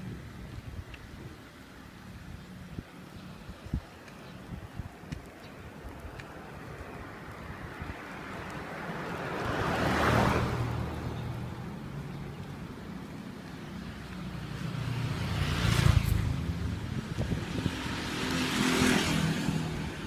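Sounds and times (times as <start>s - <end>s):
small motorbike passing: 0.0s - 20.0s
car passing: 5.2s - 20.0s.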